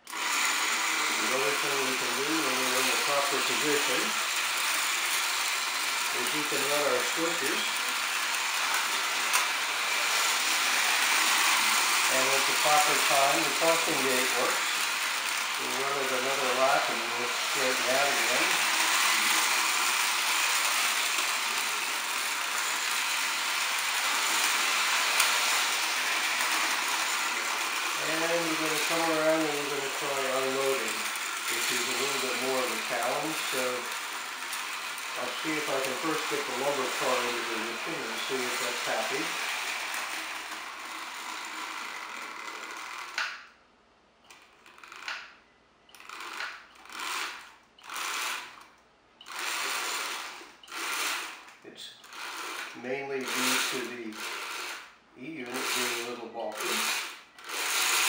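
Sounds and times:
model train running on track: 0:00.0 - 0:42.0, 0:53.2 - 0:54.8, 0:55.5 - 0:58.0.

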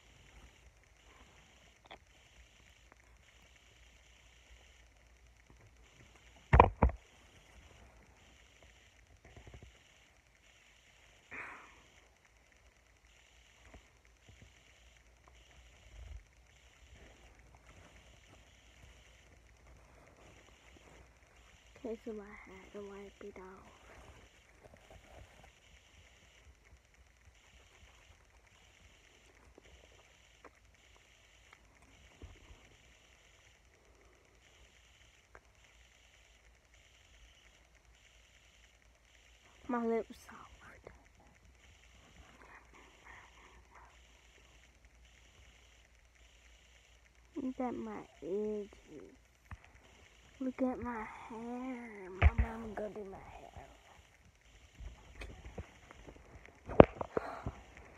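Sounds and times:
room hiss: 0:00.0 - 0:57.9
rubbing and scraping on phone: 0:13.1 - 0:21.9, 0:22.6 - 0:39.4.

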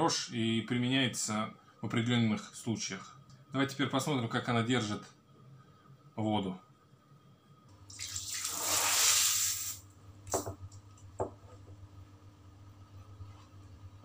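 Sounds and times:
pressurised water hissing: 0:07.9 - 0:09.8.

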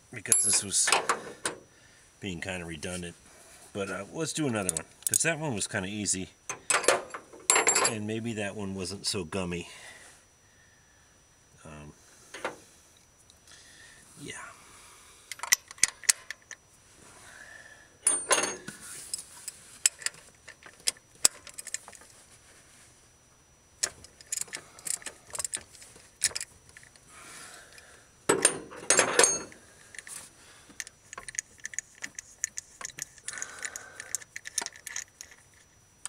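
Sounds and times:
metal tools clinking: 0:00.2 - 0:01.2, 0:04.5 - 0:05.3, 0:06.5 - 0:08.0, 0:18.0 - 0:19.2, 0:28.3 - 0:30.1
rattling clatters: 0:28.3 - 0:29.6.

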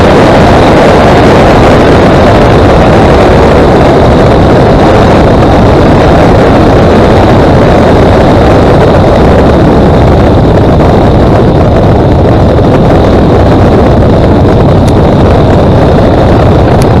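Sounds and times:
light aircraft engine and propeller: 0:00.0 - 0:17.0
wind rush on microphone: 0:00.0 - 0:17.0.

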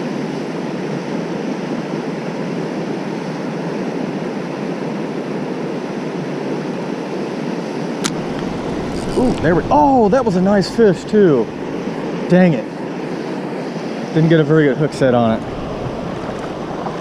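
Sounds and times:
water rushing over dam: 0:08.0 - 0:12.4.

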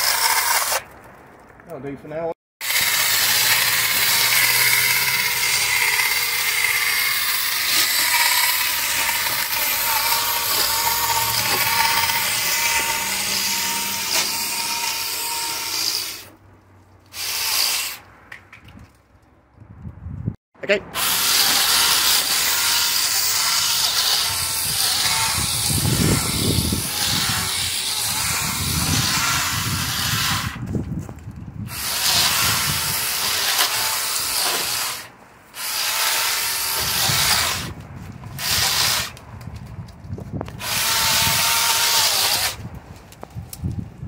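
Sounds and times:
electric chainsaw cutting vines: 0:00.0 - 0:00.9, 0:02.6 - 0:16.3, 0:17.1 - 0:18.0, 0:21.0 - 0:30.6, 0:31.7 - 0:39.2, 0:40.6 - 0:42.7.

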